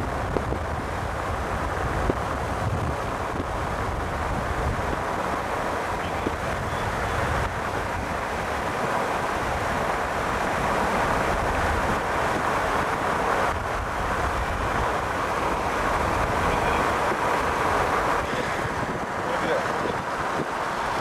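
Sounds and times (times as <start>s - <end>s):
wind and road noise: 0.0s - 21.0s.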